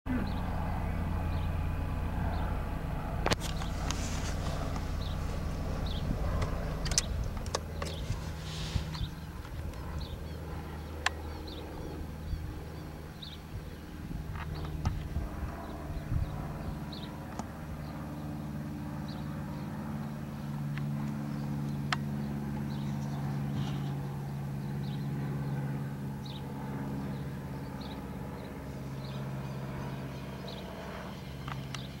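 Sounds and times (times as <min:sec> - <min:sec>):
small birds chirping: 0:00.1 - 0:01.6, 0:03.3 - 0:32.0
low hum of engine or traffic: 0:00.1 - 0:32.0
sharp clicks: 0:06.4 - 0:08.1.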